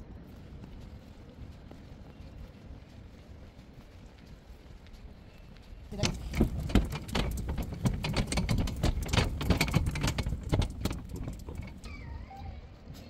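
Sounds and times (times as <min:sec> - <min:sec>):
pushchair wheels clattering: 0:05.9 - 0:12.3.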